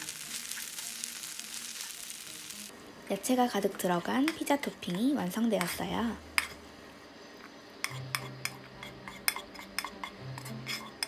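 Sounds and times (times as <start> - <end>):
spatula scraping a frying pan: 7.9 - 11.0.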